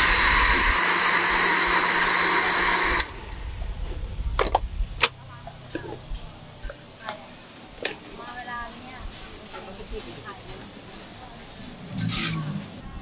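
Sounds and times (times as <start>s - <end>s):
blender running: 0.0s - 3.4s.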